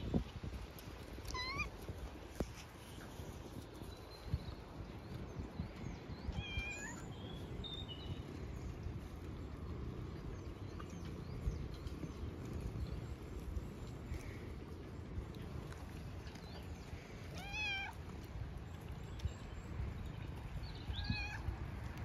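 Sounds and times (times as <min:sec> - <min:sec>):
cat chirping calls: 0:01.2 - 0:01.7, 0:06.3 - 0:07.1, 0:17.3 - 0:18.0, 0:20.8 - 0:21.6.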